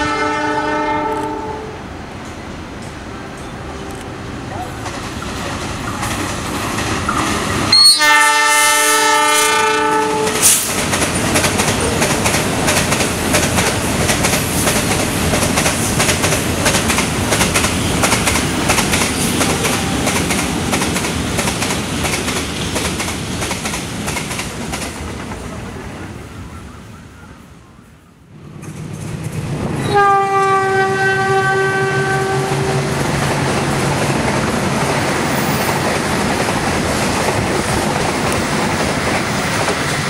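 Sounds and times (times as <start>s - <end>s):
train horn chord: 0.0s - 1.8s, 7.7s - 10.5s, 29.8s - 33.0s
freight train rumbling past: 0.0s - 40.0s
wheels clacking over rail joints: 4.6s - 7.8s, 10.2s - 25.6s.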